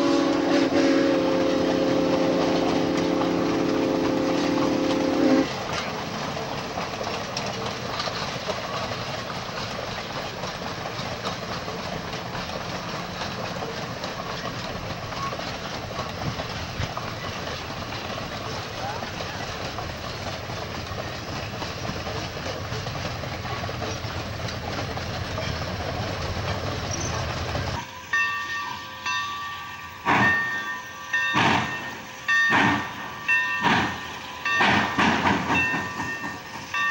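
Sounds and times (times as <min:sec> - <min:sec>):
steam locomotive whistle chord: 0:00.0 - 0:05.5
train cars rumbling on rails: 0:00.0 - 0:36.9.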